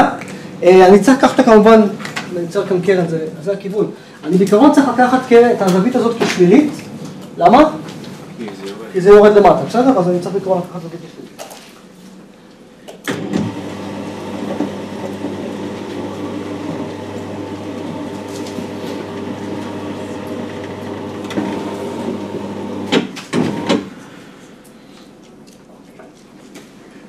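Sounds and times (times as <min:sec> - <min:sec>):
electric drive humming: 0:13.1 - 0:24.2.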